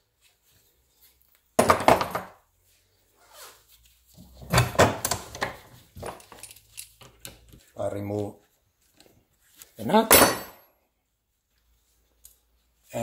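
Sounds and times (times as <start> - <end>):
metal knocking and clinking: 10.1 - 10.6.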